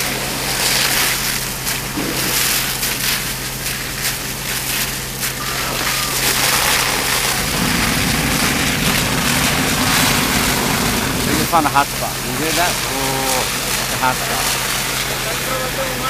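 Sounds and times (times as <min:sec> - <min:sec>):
fire engine pump humming: 0:00.0 - 0:16.0
water hissing from fire hose: 0:00.0 - 0:16.0
rough low rumble: 0:04.5 - 0:16.0.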